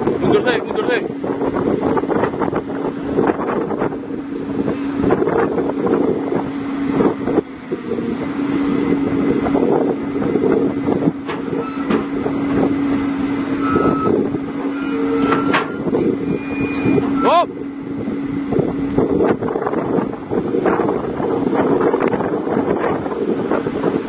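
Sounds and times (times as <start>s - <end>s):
excavator diesel engine drone: 0.0s - 24.0s
wind buffeting microphone: 0.0s - 24.0s
metallic clanks and knocks: 11.2s - 12.2s, 15.2s - 15.8s.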